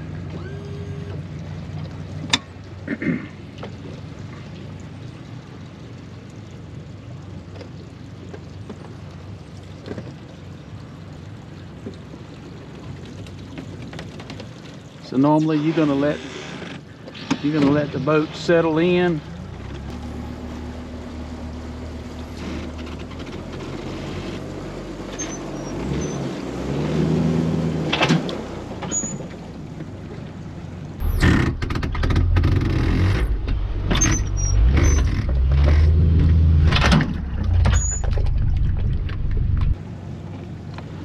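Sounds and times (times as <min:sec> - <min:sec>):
outboard motor running: 0:00.0 - 0:15.0, 0:15.8 - 0:41.0
knocks and clatter of boat hull: 0:13.1 - 0:14.8.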